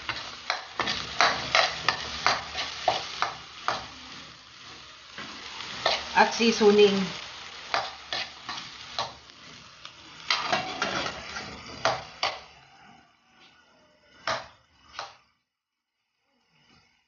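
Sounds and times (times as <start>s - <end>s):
ladle scraping in a wok: 0.0s - 12.6s
food sizzling in oil: 0.0s - 15.4s.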